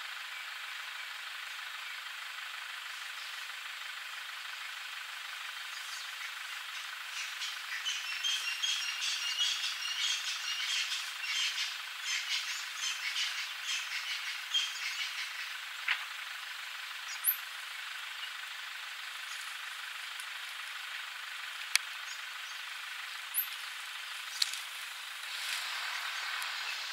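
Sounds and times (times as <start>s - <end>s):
birds chirping: 2.9s - 3.6s, 4.4s - 15.9s, 17.0s - 26.9s
outdoor hiss: 15.4s - 26.9s.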